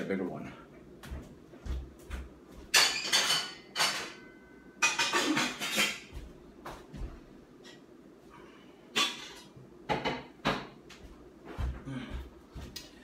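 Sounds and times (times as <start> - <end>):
metal pots and pans clattering: 2.7 - 6.2, 8.9 - 10.6.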